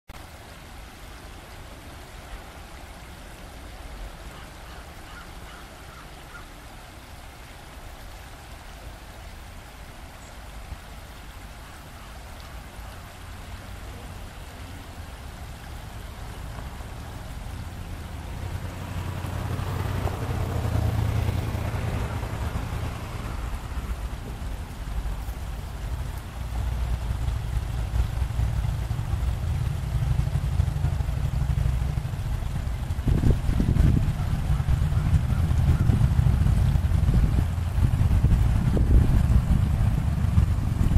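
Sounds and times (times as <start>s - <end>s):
river rushing over rocks: 0.1s - 40.9s
low rumble: 15.5s - 40.9s.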